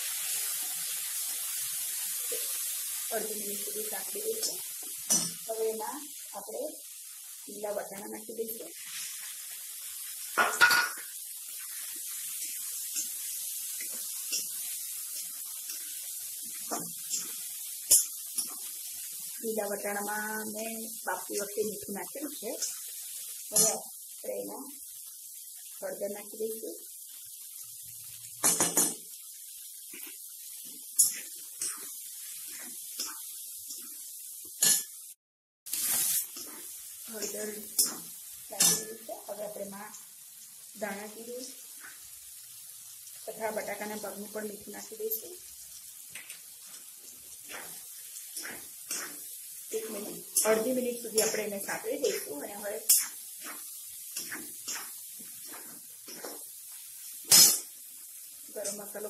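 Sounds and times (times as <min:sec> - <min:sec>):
peas sizzling in hot oil: 0:00.0 - 0:59.0
metal spatula scraping a pan: 0:29.9 - 0:34.0, 0:35.7 - 0:39.2, 0:47.3 - 0:57.8
metal spatula scraping pan: 0:47.4 - 0:51.5, 0:52.1 - 0:56.5.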